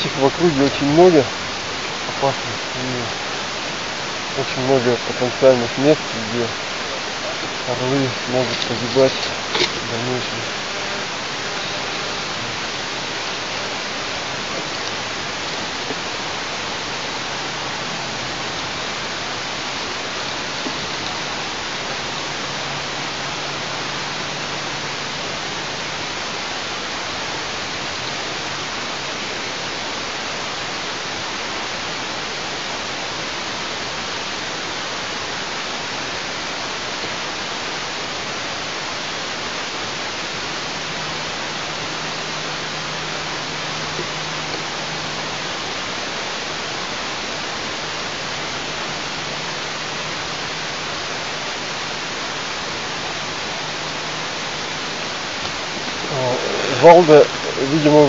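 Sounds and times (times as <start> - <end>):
steady hiss: 0.0 - 58.0.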